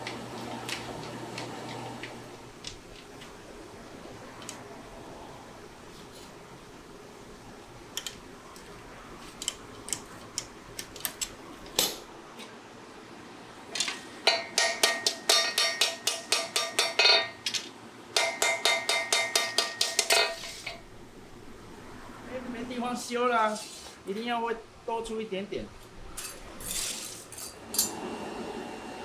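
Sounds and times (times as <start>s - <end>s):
hammer striking blade on anvil: 14.3s - 17.4s, 18.2s - 20.5s.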